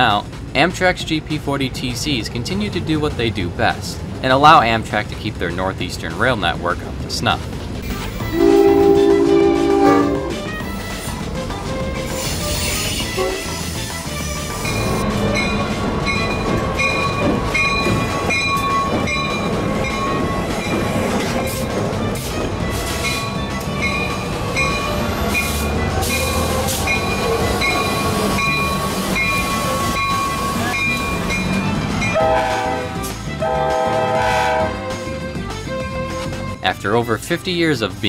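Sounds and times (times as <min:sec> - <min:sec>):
diesel locomotive passing: 0:00.0 - 0:38.0
locomotive bell ringing: 0:07.9 - 0:11.0, 0:14.4 - 0:32.5
train horn: 0:08.2 - 0:11.1, 0:12.2 - 0:13.8, 0:32.1 - 0:34.9.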